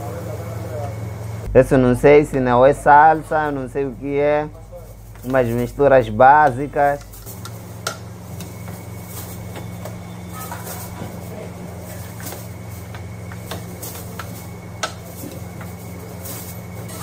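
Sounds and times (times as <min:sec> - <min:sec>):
steady low hum: 0:00.0 - 0:17.0
steel ladles knocking pots: 0:06.4 - 0:17.0.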